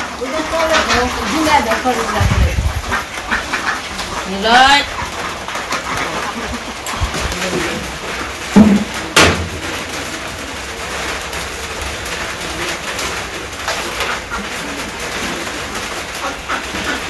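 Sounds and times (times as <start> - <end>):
bird cooing: 13.8 - 17.0.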